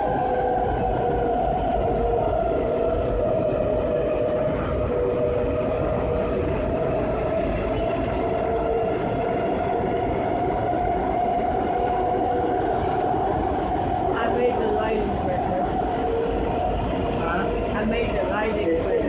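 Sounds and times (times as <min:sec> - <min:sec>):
subway car rumble: 0:00.0 - 0:19.0
subway car whine: 0:00.0 - 0:19.0.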